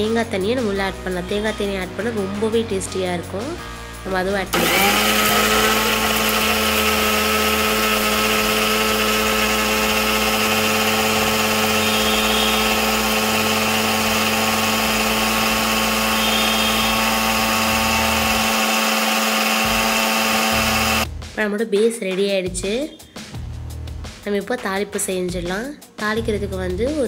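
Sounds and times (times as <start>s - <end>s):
mixer grinder whining: 4.5s - 21.1s.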